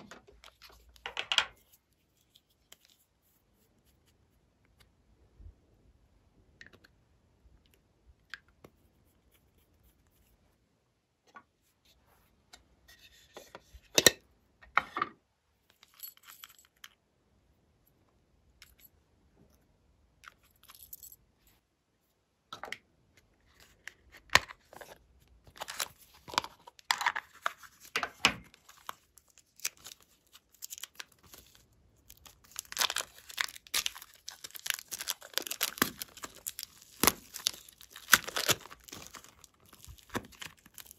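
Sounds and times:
plastic wrap crinkling and tearing: 25.6 - 40.9.

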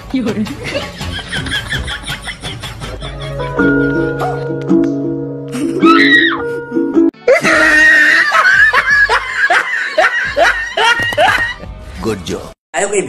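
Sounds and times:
music: 0.0 - 13.0
man laughing loudly: 0.7 - 3.6, 7.2 - 11.6.

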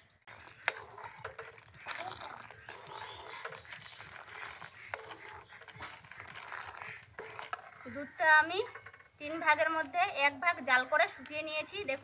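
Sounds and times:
milk simmering and frothing: 0.0 - 12.0
milk pouring in a stream: 0.3 - 7.9.

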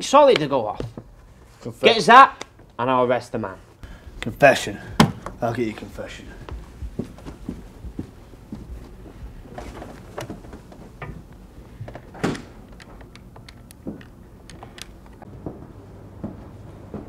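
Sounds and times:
footsteps: 3.6 - 12.6, 13.8 - 17.0
low hum: 6.2 - 17.0.

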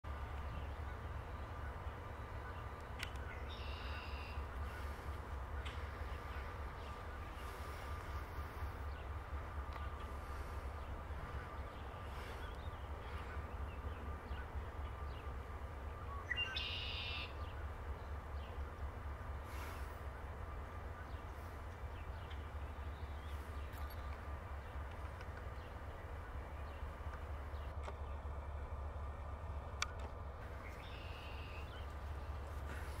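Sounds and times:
low outdoor rumble: 0.0 - 33.0
short bird call: 16.3 - 17.4.

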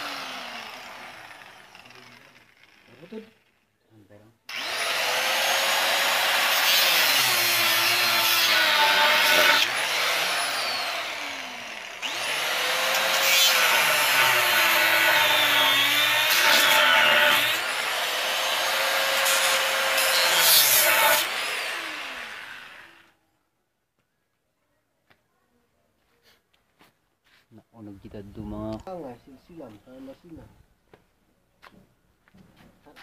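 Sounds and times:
power tool cutting metal: 0.0 - 3.6, 4.5 - 23.1.

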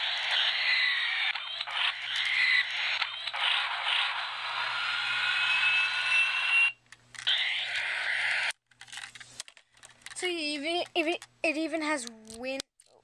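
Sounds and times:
toy jet engine sound effect: 0.0 - 8.6.

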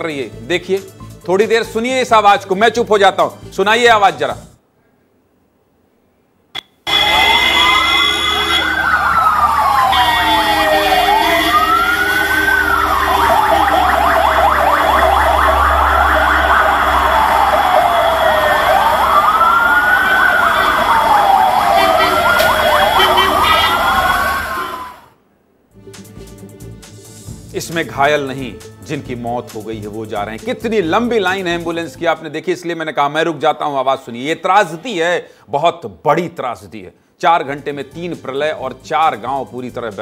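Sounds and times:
low traffic rumble: 6.9 - 25.0
ambulance sirens wailing: 6.9 - 25.2.

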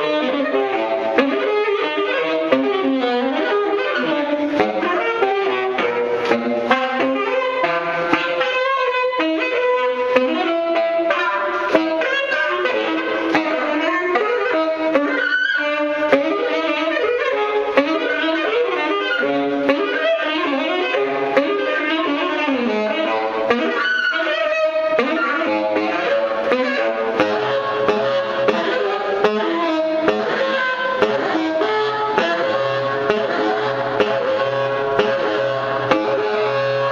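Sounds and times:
pitched notes underneath: 0.0 - 36.9
saxophone improvising: 0.0 - 36.9.

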